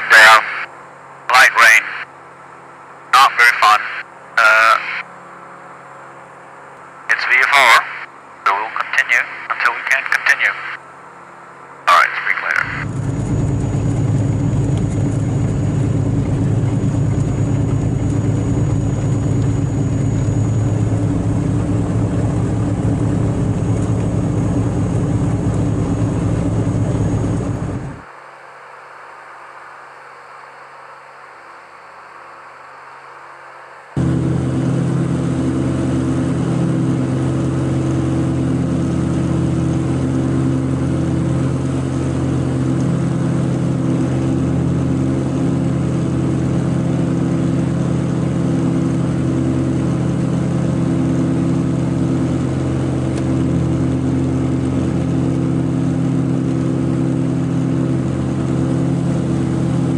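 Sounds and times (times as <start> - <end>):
twin piston engines droning: 9.4 - 28.0, 34.0 - 59.9.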